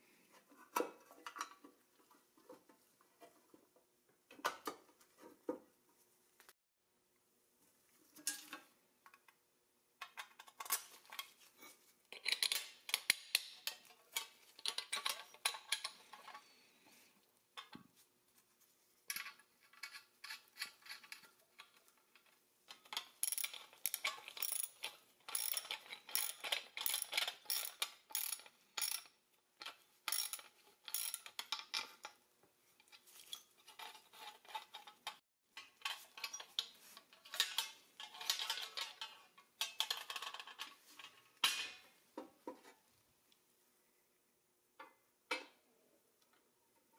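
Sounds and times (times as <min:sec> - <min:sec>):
nuts and bolts fitted to steel plate: 0:12.1 - 0:16.4, 0:19.1 - 0:32.2, 0:32.8 - 0:41.8
small metal parts clinking: 0:22.7 - 0:29.1, 0:30.1 - 0:32.2.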